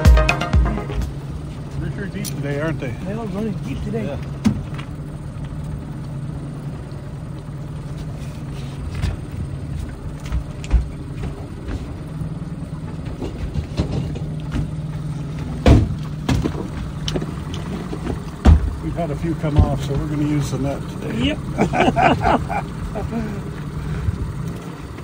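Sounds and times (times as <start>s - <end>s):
boat engine humming: 0.0s - 25.0s
knocks and thumps in boat: 7.7s - 23.0s.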